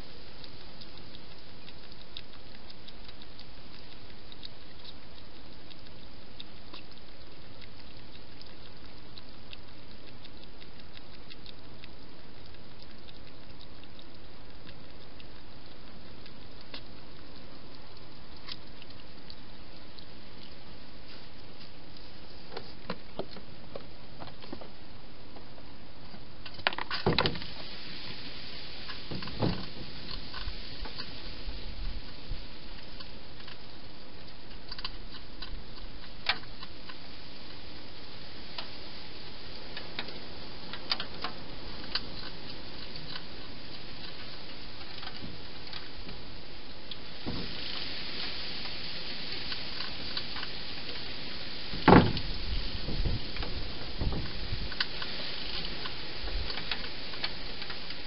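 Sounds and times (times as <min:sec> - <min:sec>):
faint ticks: 0:00.0 - 0:27.6, 0:28.8 - 0:58.0
steady hiss: 0:00.0 - 0:58.0
crackly clicking bites: 0:00.1 - 0:27.5, 0:32.0 - 0:37.6, 0:39.7 - 0:48.8.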